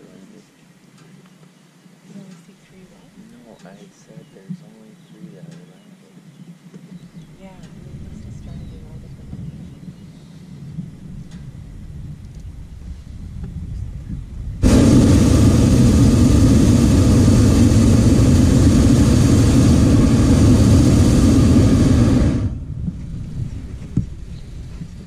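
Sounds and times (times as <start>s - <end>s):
propane burner blast: 12.8s - 24.6s.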